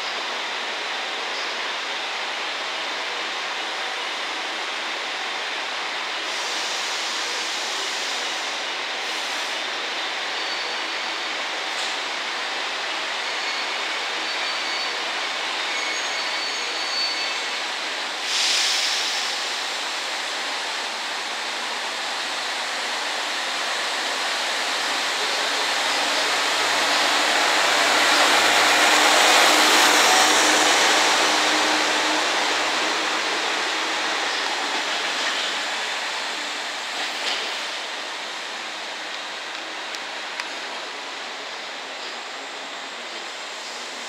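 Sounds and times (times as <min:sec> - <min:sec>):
railcar engine and wheels passing: 0:00.0 - 0:44.0
burst of hiss: 0:18.2 - 0:20.0.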